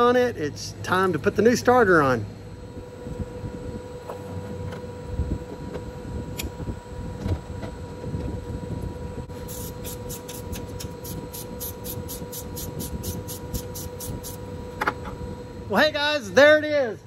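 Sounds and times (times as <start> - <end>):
steady low hum: 0.0 - 17.0
ratchet wrench clicking: 9.5 - 14.4.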